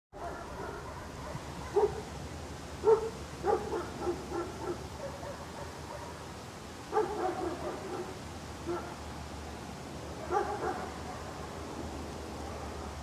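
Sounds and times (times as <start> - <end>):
small dog barking: 0.2 - 2.1, 2.8 - 6.3, 6.9 - 9.0, 10.2 - 11.4.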